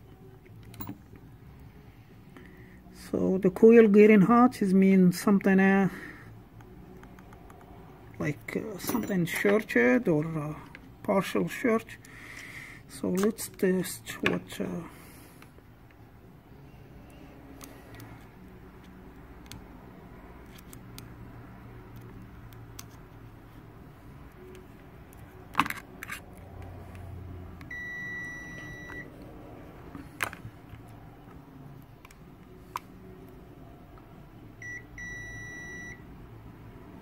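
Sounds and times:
handling clicks and knocks: 0:08.8 - 0:09.8
multimeter high beep: 0:27.7 - 0:29.1, 0:34.6 - 0:36.0.

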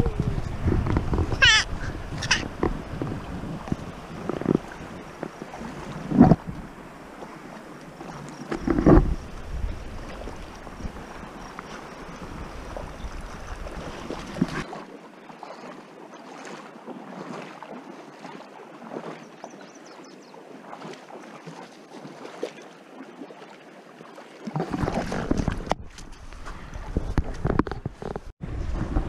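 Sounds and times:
wind buffeting microphone: 0:00.0 - 0:14.6, 0:24.6 - 0:29.0.

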